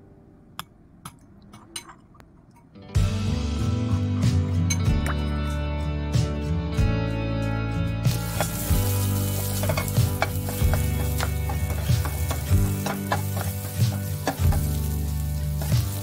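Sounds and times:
vegetables sizzling in a frying pan: 8.1s - 16.0s
wooden spatula scraping a pan: 8.2s - 16.0s.

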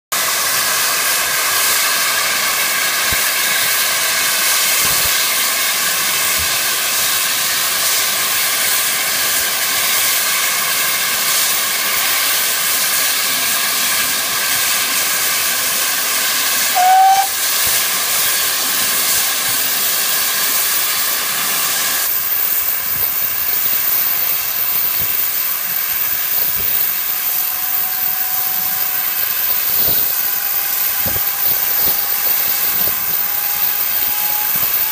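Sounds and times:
steam hissing from safety valves: 0.1s - 34.9s
short whistle-like note: 16.6s - 17.8s, 21.9s - 34.9s.

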